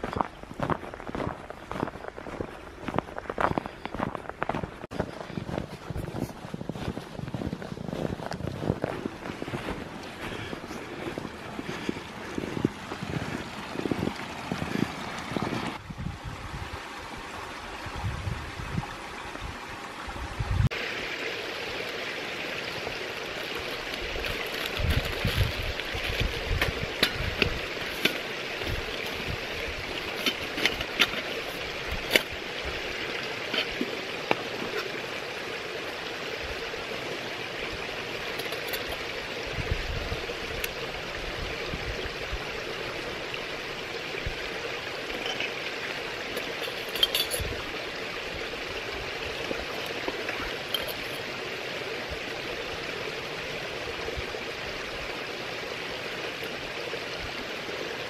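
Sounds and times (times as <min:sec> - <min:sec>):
stream rushing: 0:00.0 - 0:58.0
camping gear clinking: 0:22.7 - 0:35.2, 0:38.1 - 0:39.3, 0:44.9 - 0:47.9, 0:49.1 - 0:51.5.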